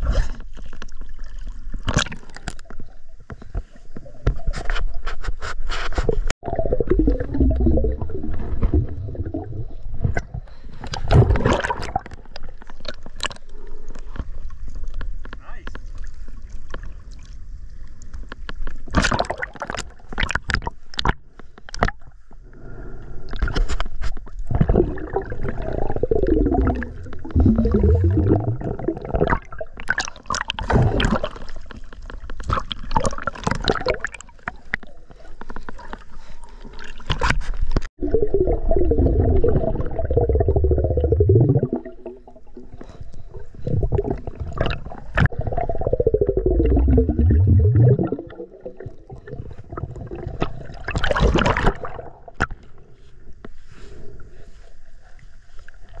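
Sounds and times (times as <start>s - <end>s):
water sloshing and splashing: 0.0s - 22.0s, 23.3s - 54.6s
muffled underwater bubbling: 6.4s - 12.1s, 24.4s - 31.6s, 38.0s - 52.5s.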